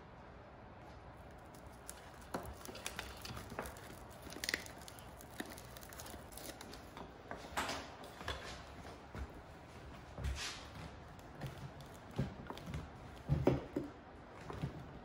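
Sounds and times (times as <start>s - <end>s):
rustling of handling: 0.9s - 15.0s.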